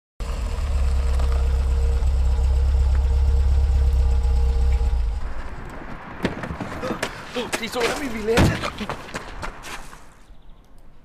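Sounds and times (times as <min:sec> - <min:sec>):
car engine idling: 0:00.2 - 0:05.6.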